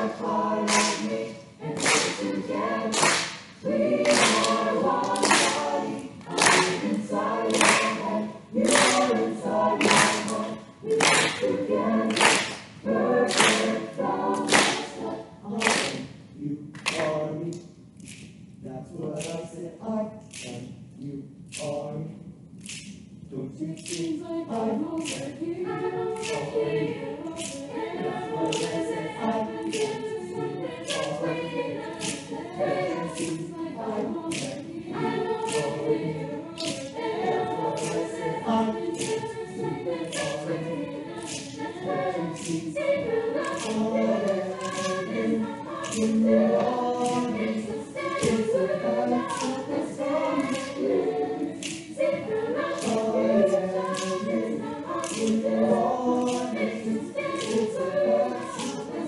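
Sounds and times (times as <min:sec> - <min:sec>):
choir singing in close harmony: 0:00.0 - 0:17.4, 0:23.4 - 0:59.0
steady sharp clicks: 0:22.6 - 0:59.0.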